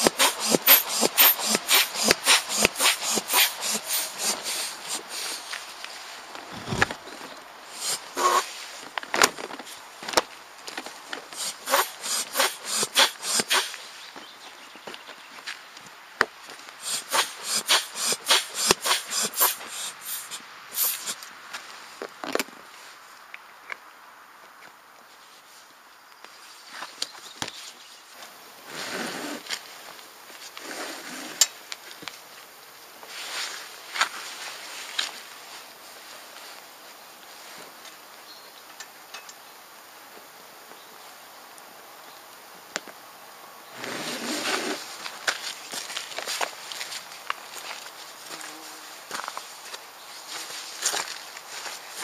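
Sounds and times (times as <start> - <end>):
hands rubbing on inflatable seat: 0.0 - 5.7.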